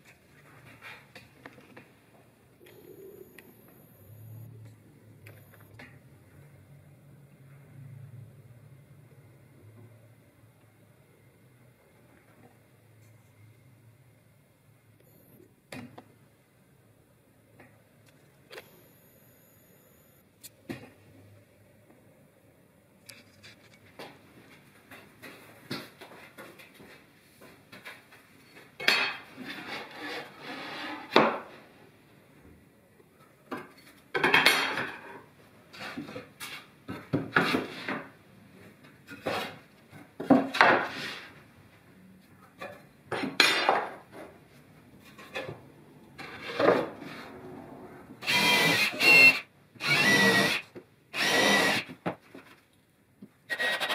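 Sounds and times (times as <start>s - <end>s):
tools and wood clattering: 33.5s - 38.1s, 42.6s - 44.4s
cordless drill: 48.2s - 51.9s, 53.5s - 53.9s.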